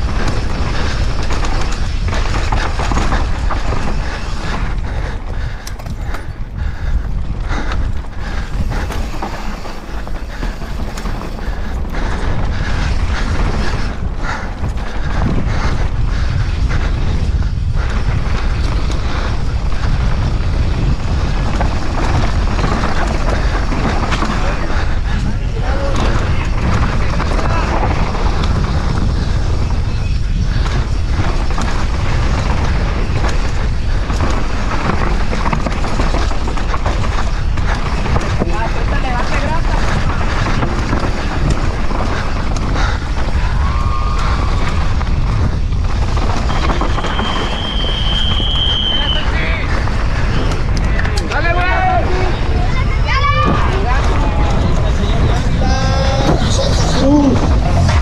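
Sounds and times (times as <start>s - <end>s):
bike frame and chain rattling: 0.0s - 58.0s
bike tyres rumbling on dirt: 0.0s - 58.0s
wind on microphone: 0.0s - 58.0s
tyres rumbling over rock: 7.4s - 14.4s.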